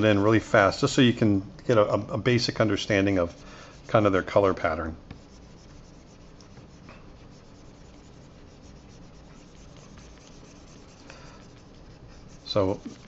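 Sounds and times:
stylus scratching on tablet: 2.5 - 13.0.

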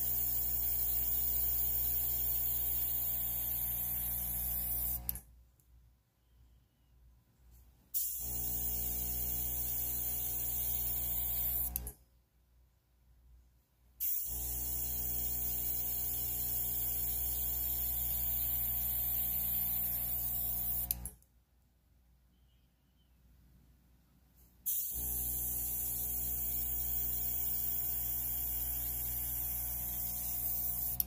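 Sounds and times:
airbrush air hissing: 0.0 - 5.0, 8.0 - 11.8, 24.7 - 31.0
air compressor motor humming: 0.0 - 5.2, 8.0 - 11.9, 14.0 - 21.1, 24.7 - 31.0.

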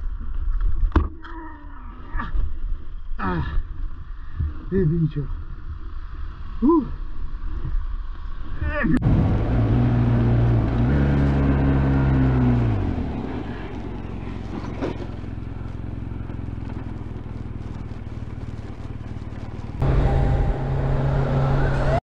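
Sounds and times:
road and wind noise: 2.4 - 22.0
motorcycle engine: 9.0 - 22.0.

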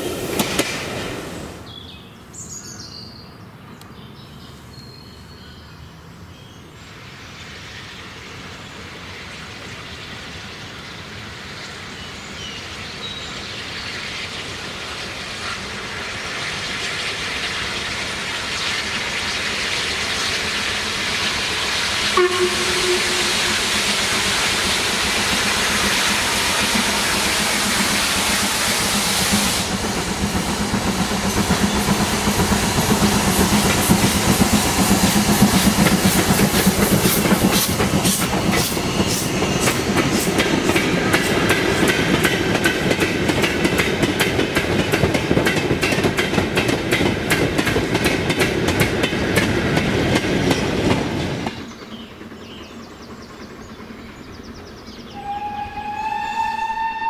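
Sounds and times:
train wheels clicking over rails: 0.0 - 1.6, 13.9 - 55.2
steam hissing: 7.0 - 54.0
train whistle: 22.1 - 24.0, 55.1 - 57.0.

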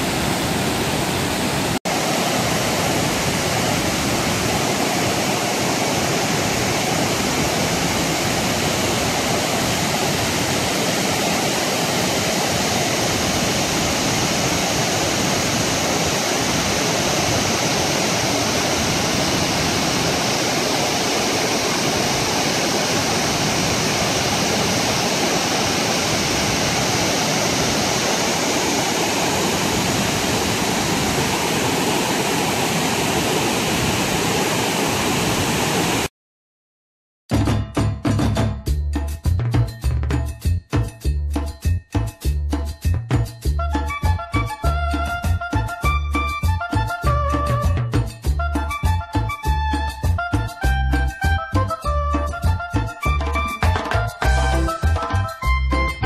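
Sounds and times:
waterfall rushing: 0.0 - 36.1.

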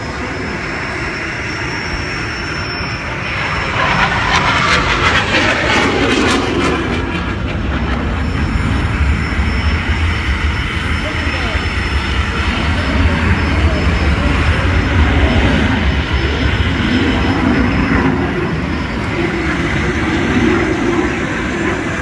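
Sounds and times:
fighter jet flying past: 0.0 - 22.0.

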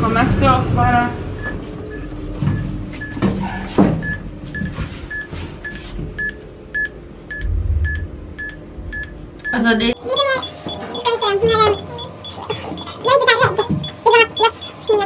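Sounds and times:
short electronic beeps: 1.4 - 3.2, 4.0 - 15.0
low rumble: 6.1 - 10.0.

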